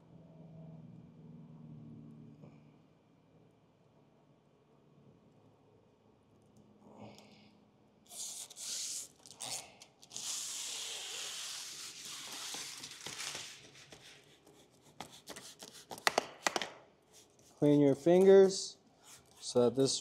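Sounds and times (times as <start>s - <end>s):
film liner peeling crackle: 11.9s - 13.8s.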